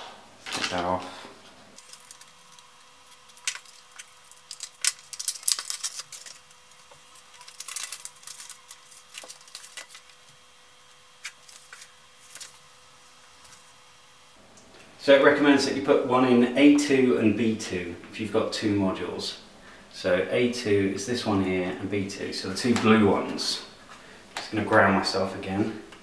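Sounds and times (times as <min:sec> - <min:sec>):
packaging rustling and clicking: 0:01.8 - 0:10.4, 0:11.2 - 0:12.6.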